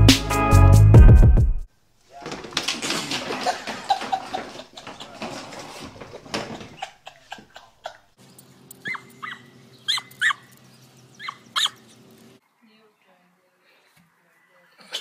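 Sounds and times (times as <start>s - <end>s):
knocking and scraping clatter: 2.2s - 6.9s
dog yelping: 8.8s - 10.6s, 11.2s - 12.0s.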